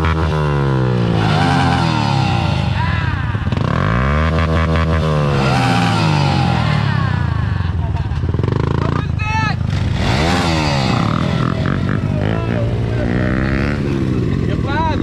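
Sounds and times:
small engine revving: 9.7s - 15.0s.

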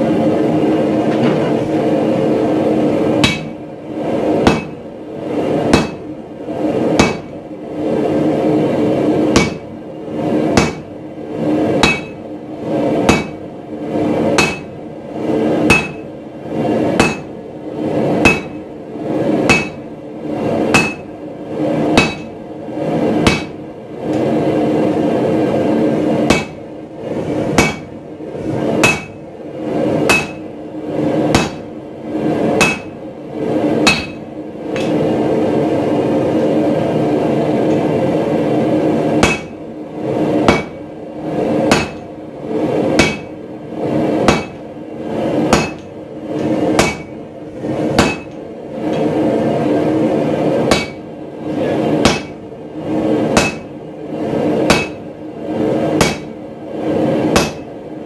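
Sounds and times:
hammer striking hot steel on anvil: 3.2s - 3.6s, 4.4s - 4.8s, 5.7s - 6.1s, 6.9s - 7.4s, 9.3s - 9.7s, 10.5s - 10.9s, 11.8s - 12.2s, 13.0s - 13.4s, 14.4s - 14.8s, 15.6s - 16.1s, 16.9s - 17.4s, 18.2s - 18.7s, 19.4s - 19.9s, 20.7s - 21.1s, 21.9s - 22.4s, 23.2s - 23.6s, 26.3s - 26.6s, 27.6s - 28.0s, 28.8s - 29.2s, 30.0s - 30.5s, 31.3s - 31.7s, 32.6s - 33.0s, 33.8s - 35.0s, 39.2s - 39.6s, 40.4s - 40.8s, 41.7s - 42.1s, 43.0s - 43.4s, 44.2s - 44.6s, 45.5s - 47.2s, 47.9s - 49.1s, 50.7s - 51.0s, 52.0s - 52.4s, 53.3s - 53.7s, 54.6s - 55.1s, 56.0s - 56.4s, 57.3s - 57.7s.

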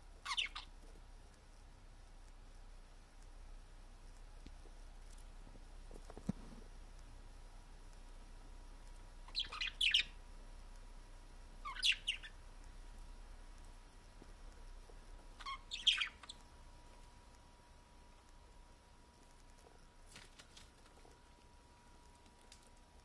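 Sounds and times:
budgerigars chirping: 0.2s - 0.7s, 9.3s - 10.2s, 11.6s - 12.4s, 15.3s - 16.4s.

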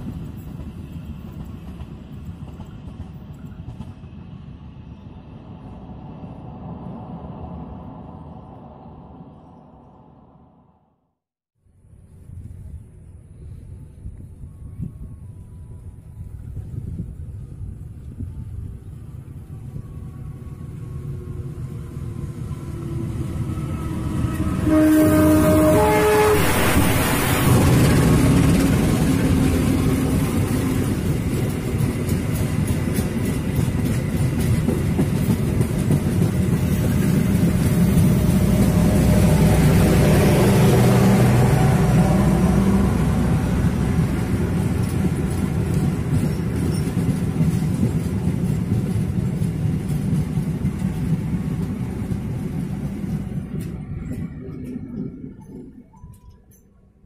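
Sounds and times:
train coaches rolling on rails: 0.0s - 4.8s, 15.3s - 56.8s
diesel locomotive engine running: 14.4s - 55.8s.

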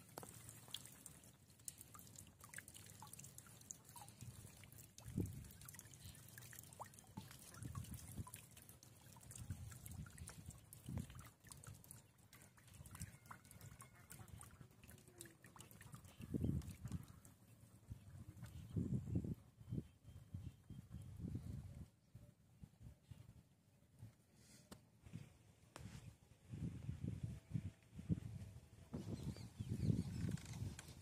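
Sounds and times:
water dripping and trickling: 0.0s - 17.5s.

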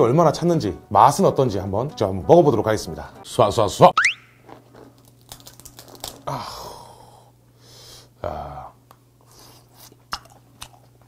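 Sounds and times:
crab legs snapping: 4.6s - 6.3s, 10.0s - 11.0s.

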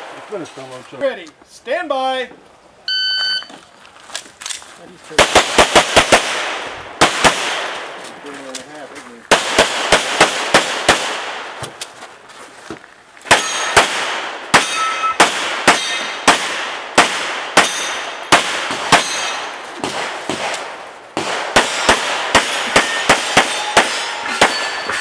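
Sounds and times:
pistol shots: 5.2s - 8.0s, 9.3s - 11.7s, 13.3s - 24.8s
metallic ring: 13.4s - 13.8s, 14.6s - 15.2s, 22.6s - 25.0s.

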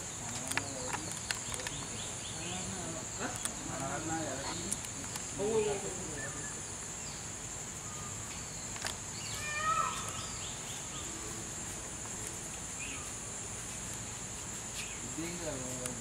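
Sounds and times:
insect chorus chirring: 0.0s - 16.0s
chirping calls: 5.5s - 11.3s.

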